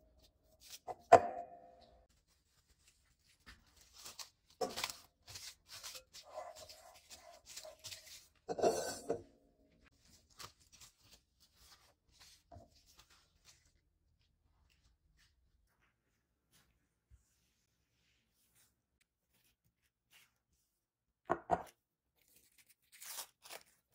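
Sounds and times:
cloth rustling: 0:02.0 - 0:08.5, 0:09.7 - 0:13.9.

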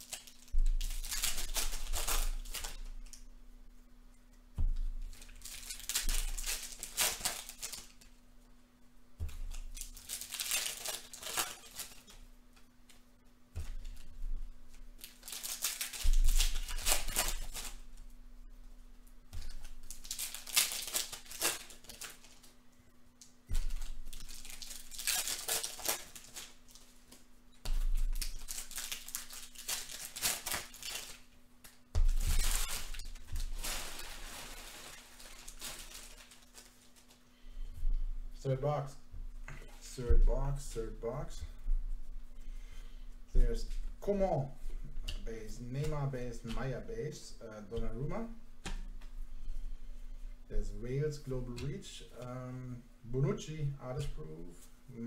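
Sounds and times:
card wrappers tearing and crinkling: 0:00.0 - 0:03.2, 0:05.1 - 0:08.1, 0:09.3 - 0:12.2, 0:15.0 - 0:17.9, 0:19.4 - 0:22.6, 0:23.5 - 0:37.2.

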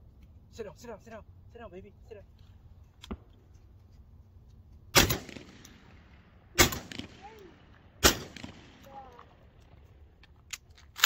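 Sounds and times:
shotgun shots echoing: 0:04.9 - 0:09.6.

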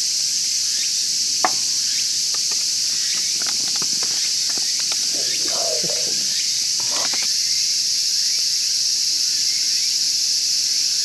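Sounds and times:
sharp knock: 0:01.5 - 0:04.2.

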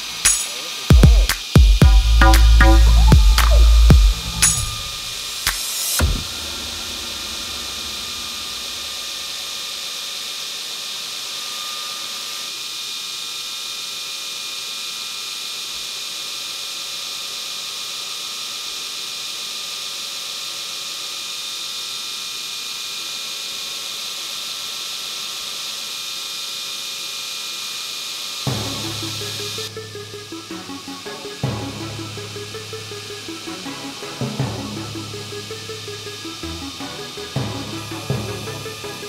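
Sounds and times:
belt grinder grinding steel: 0:00.0 - 0:39.0.

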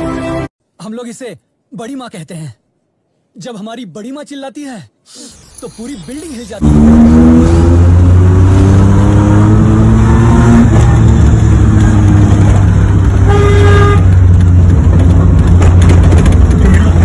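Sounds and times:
car horn: 0:13.2 - 0:14.3.

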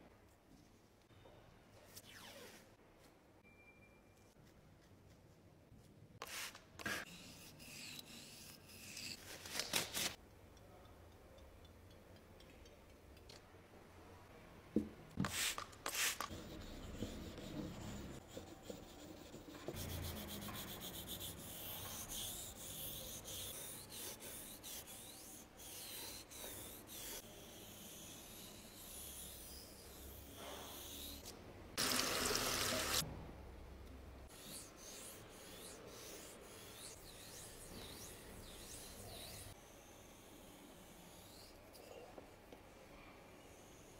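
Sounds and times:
sharpening stones scraping: 0:07.1 - 0:09.2
tap water running: 0:31.8 - 0:33.0.

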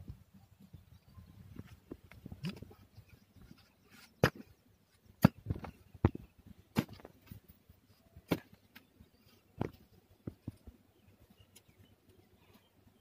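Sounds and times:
soil crumbling: 0:01.6 - 0:07.6, 0:08.2 - 0:10.7
hoe chopping into hard earth: 0:04.2 - 0:04.5, 0:05.2 - 0:07.3.

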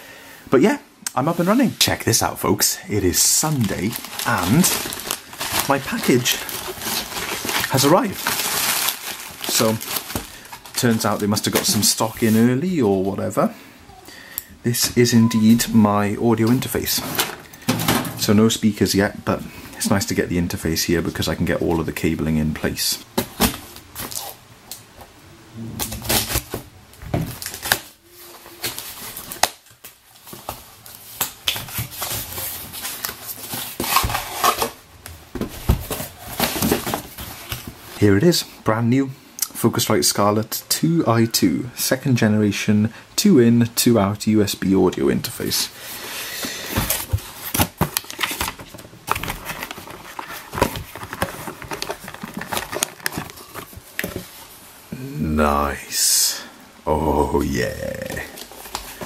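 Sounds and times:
plastic wrapping crinkling: 0:03.1 - 0:12.5, 0:27.3 - 0:34.8, 0:46.7 - 0:54.6
cardboard box being handled: 0:48.2 - 0:54.4.

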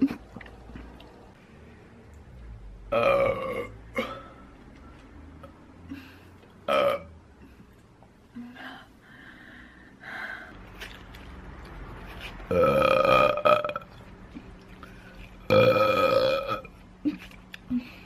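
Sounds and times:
woman burping: 0:02.9 - 0:04.3, 0:12.5 - 0:13.9, 0:15.5 - 0:17.9.

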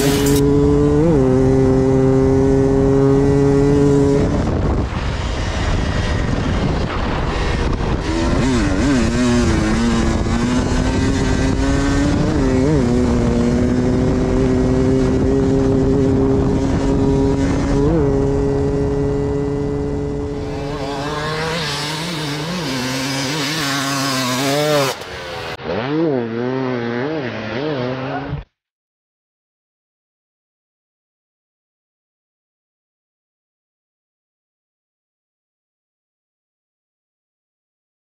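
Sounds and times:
motorcycle engine revving: 0:00.0 - 0:28.5.

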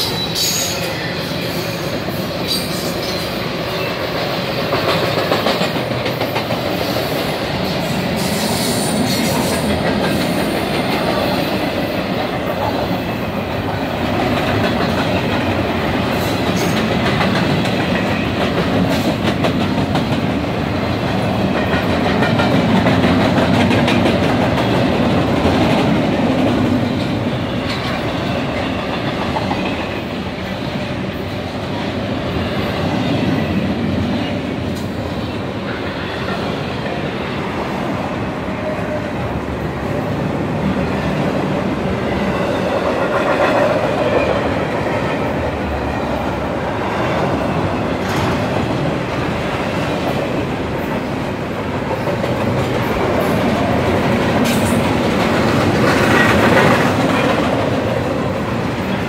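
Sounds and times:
rumble of wheels on rail: 0:00.0 - 0:59.0
wheels clacking over rail joints: 0:04.0 - 0:07.8, 0:51.8 - 0:59.0.

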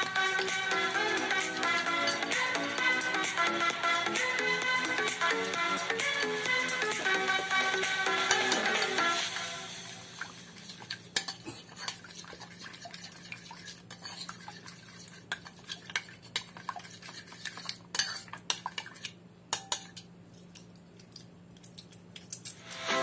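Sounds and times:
metal spoon clinking in ceramic bowl: 0:02.0 - 0:02.4, 0:19.5 - 0:20.1.

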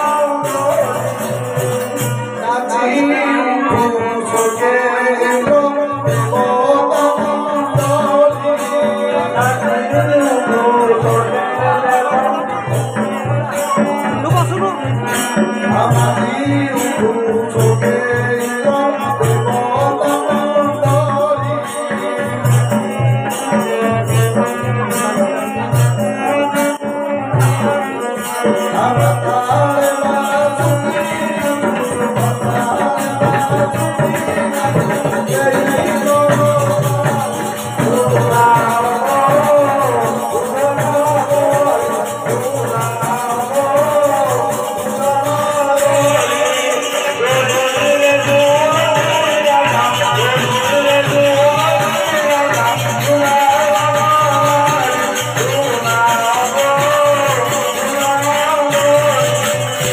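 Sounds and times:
person singing devotional melody: 0:00.0 - 0:59.9
jingling rattle percussion: 0:04.2 - 0:59.9
low drum beat: 0:12.8 - 0:15.1.

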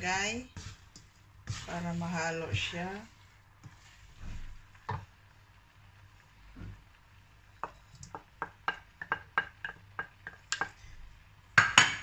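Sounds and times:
noodles tossed in a wok: 0:00.0 - 0:10.8.

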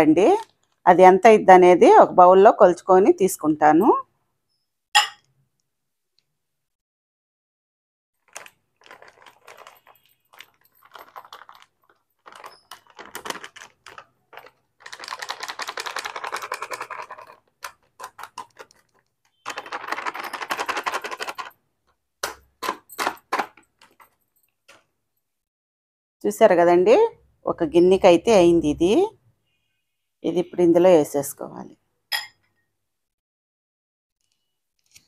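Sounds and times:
plastic packet crinkling: 0:08.2 - 0:21.5.

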